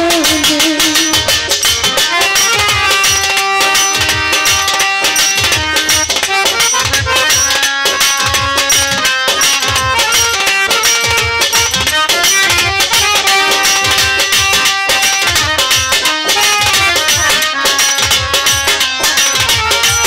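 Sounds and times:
person singing: 0:00.0 - 0:01.4
hand drum beat: 0:00.0 - 0:20.0
reedy keyboard melody: 0:00.0 - 0:20.0.

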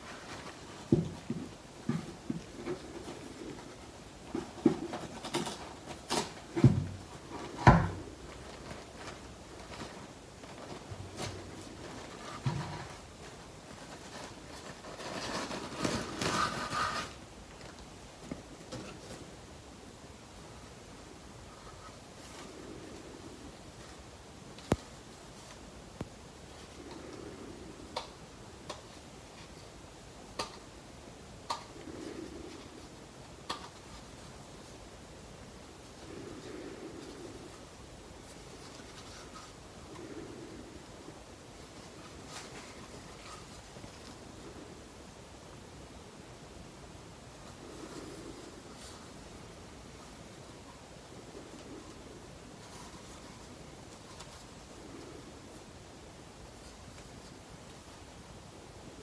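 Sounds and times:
knit gloves rustling: 0:00.0 - 0:19.4, 0:31.5 - 0:45.6
wrapping crinkling and rustling: 0:08.2 - 0:17.8.

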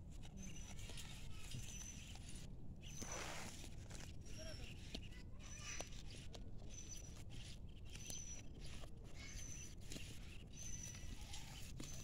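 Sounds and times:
goat crunching and tearing grass: 0:00.0 - 0:12.0.

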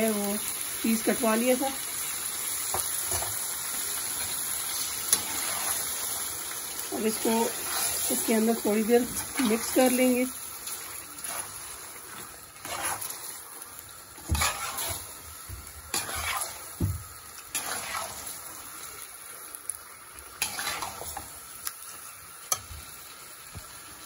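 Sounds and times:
food sizzling in oil: 0:00.0 - 0:24.0
metal spoon scraping a pot: 0:12.6 - 0:13.2, 0:14.2 - 0:15.1, 0:15.9 - 0:16.7, 0:17.5 - 0:18.3, 0:20.4 - 0:21.2.

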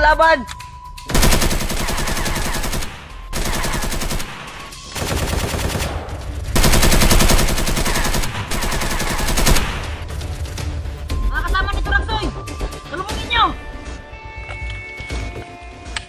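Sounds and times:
machine-gun fire: 0:01.1 - 0:10.2.

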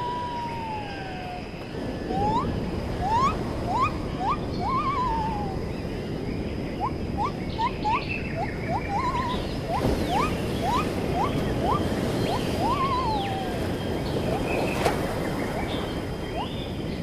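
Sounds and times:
low rush of wind or surf: 0:00.0 - 0:17.0
bird whistling and trilling: 0:02.1 - 0:05.7, 0:06.8 - 0:14.9, 0:15.5 - 0:16.6.

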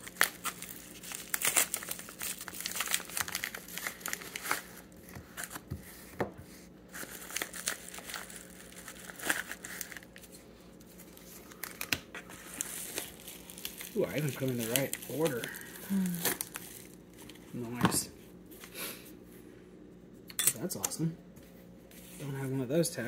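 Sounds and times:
plastic and paper crinkling: 0:00.0 - 0:18.7.

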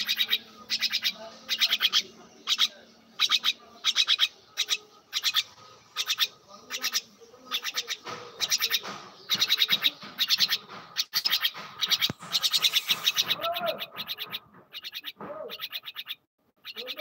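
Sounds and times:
bird pecking dry husk: 0:03.2 - 0:16.2.

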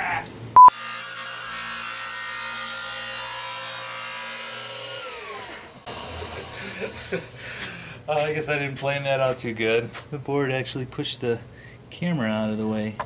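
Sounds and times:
power saw cutting board: 0:00.7 - 0:07.7.

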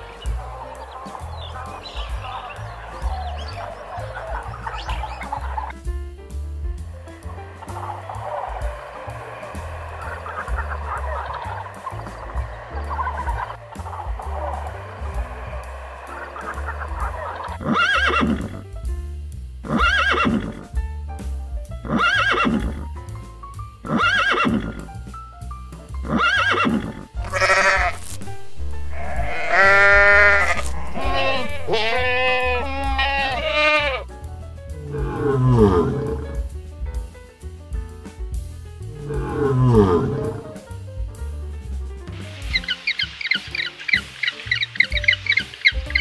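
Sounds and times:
background music: 0:00.0 - 0:46.0
horse whinny: 0:17.6 - 0:18.6, 0:19.7 - 0:20.6, 0:21.9 - 0:22.8, 0:23.9 - 0:24.8, 0:26.0 - 0:28.2, 0:28.9 - 0:34.0
short rising and falling animal calls: 0:26.2 - 0:34.0
lion growl: 0:39.0 - 0:40.4.

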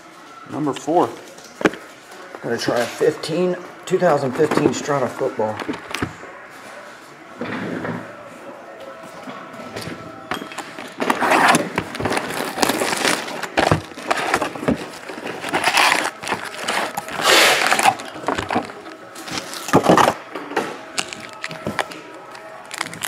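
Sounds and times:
crinkling and tearing of wrappers: 0:10.6 - 0:20.2, 0:21.0 - 0:23.0
sharp cardboard cracks: 0:15.6 - 0:18.8.

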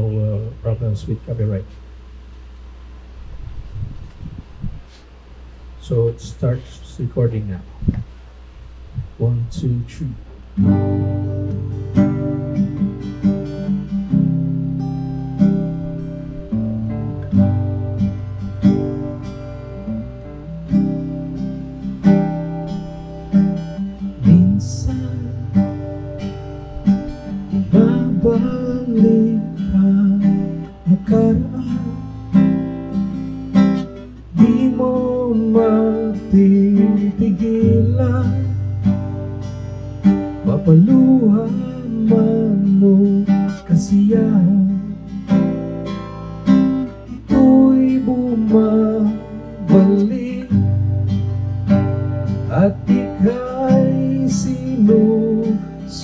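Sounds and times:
acoustic guitar strumming: 0:09.1 - 0:56.0
man singing: 0:09.2 - 0:10.3, 0:24.2 - 0:25.8, 0:27.5 - 0:32.2, 0:34.3 - 0:38.7, 0:40.4 - 0:45.1, 0:47.1 - 0:50.8, 0:52.4 - 0:56.0.

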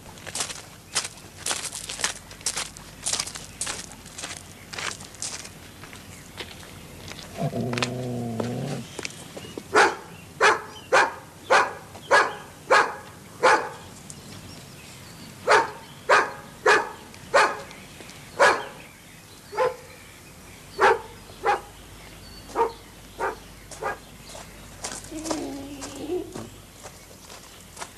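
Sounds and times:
dog barking: 0:09.7 - 0:13.8, 0:15.5 - 0:17.7, 0:18.4 - 0:18.8, 0:19.6 - 0:19.9, 0:20.8 - 0:21.7, 0:22.5 - 0:24.0.

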